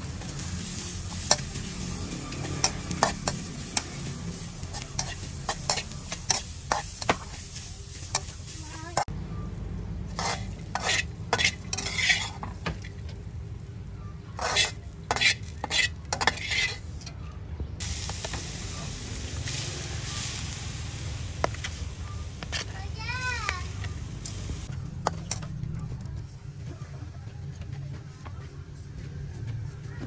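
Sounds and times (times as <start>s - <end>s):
low sizzle: 0.0s - 17.1s, 17.8s - 25.6s
metal spatula scraping a wok: 0.1s - 9.1s, 10.1s - 12.6s, 14.3s - 17.0s.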